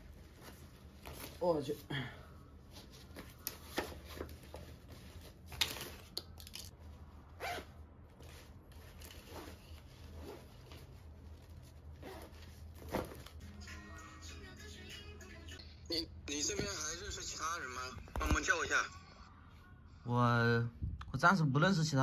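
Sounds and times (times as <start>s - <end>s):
fabric rustling: 0.0s - 1.9s, 2.5s - 13.5s
zipper scraping: 7.3s - 13.1s.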